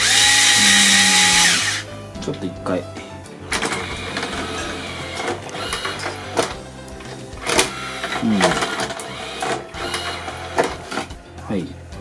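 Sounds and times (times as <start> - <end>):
disc player mechanism whirring: 0.0 - 1.9, 3.4 - 11.2
mechanism clicks and clunks: 3.5 - 11.2.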